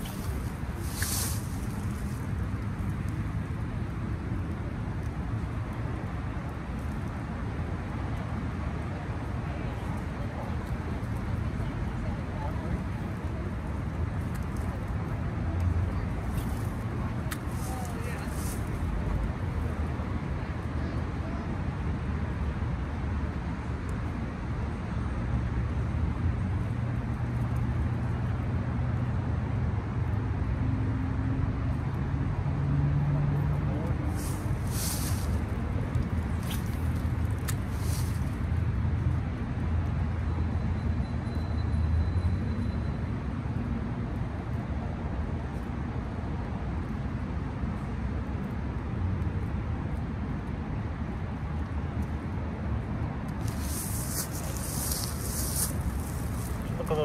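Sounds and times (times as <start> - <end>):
road traffic noise: 0.0 - 57.0
vehicle engine hum: 43.2 - 57.0
low outdoor rumble: 44.0 - 57.0.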